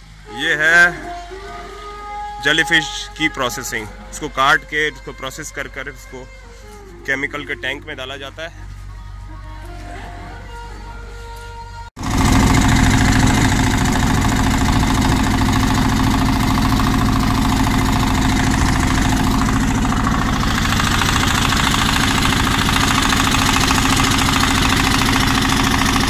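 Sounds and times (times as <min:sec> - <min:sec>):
boat engine throbbing: 0:00.0 - 0:26.0.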